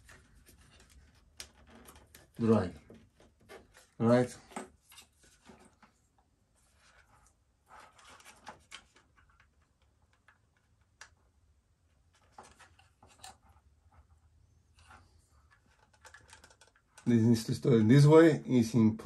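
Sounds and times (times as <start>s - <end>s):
cables rustling: 12.0s - 17.6s.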